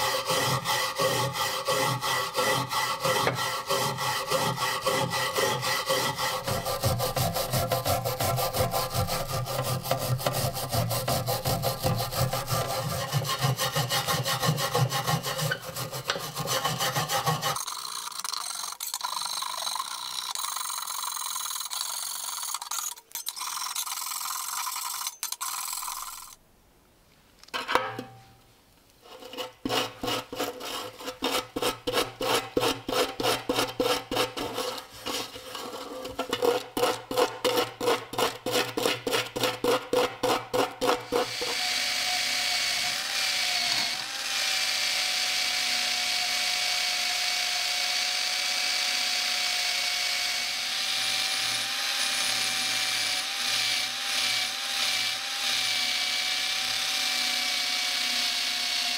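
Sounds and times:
brush scrubbing metal parts: 0:00.0 - 0:26.3, 0:29.0 - 0:41.3
wire wheel grinding steel: 0:00.0 - 0:26.4, 0:29.1 - 0:44.5.

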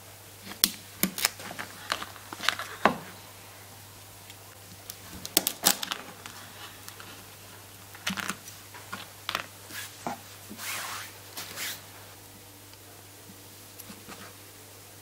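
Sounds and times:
steady low hum: 0:00.0 - 0:15.0
cloth brushing across board: 0:09.7 - 0:12.0.

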